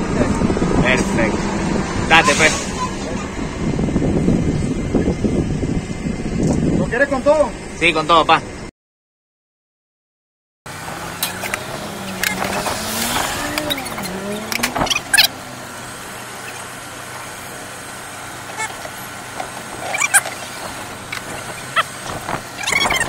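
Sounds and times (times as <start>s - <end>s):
urban background hum: 0.0s - 8.7s, 10.7s - 23.0s
vehicle engine running: 10.7s - 23.0s.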